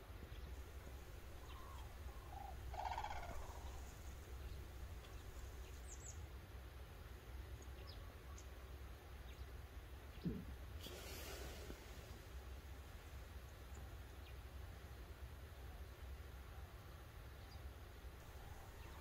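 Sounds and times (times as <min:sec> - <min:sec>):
steady low rumble: 0:00.5 - 0:06.0, 0:18.2 - 0:19.0
crane calling: 0:00.6 - 0:05.8, 0:18.2 - 0:19.0.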